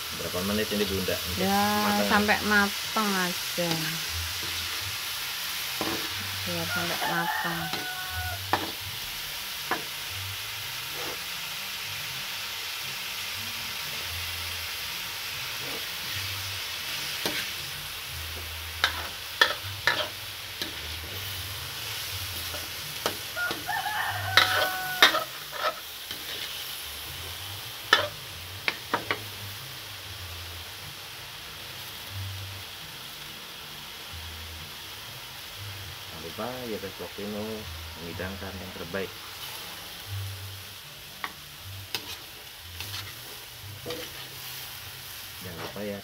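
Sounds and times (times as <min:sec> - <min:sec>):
beans sizzling in a wok: 0:00.0 - 0:46.0
metal spatula scraping a pan: 0:05.6 - 0:08.9, 0:10.8 - 0:11.4, 0:15.5 - 0:17.8, 0:18.8 - 0:29.2, 0:41.2 - 0:45.9.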